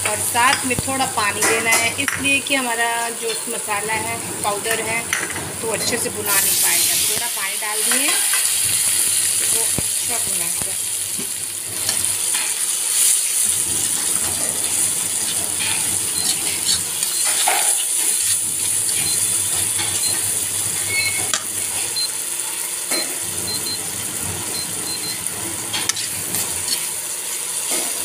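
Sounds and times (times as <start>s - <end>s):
sizzling in hot oil: 0.0s - 28.0s
metal spatula scraping: 14.1s - 19.2s, 25.7s - 27.0s.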